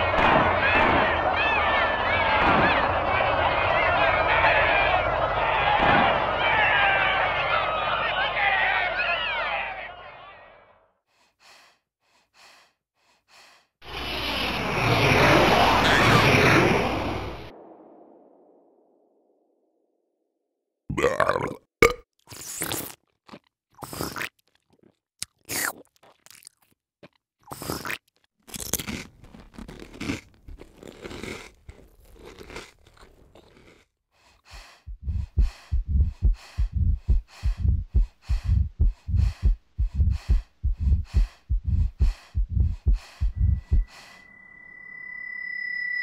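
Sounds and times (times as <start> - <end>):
crunchy chewing and biting: 22.3 - 34.4.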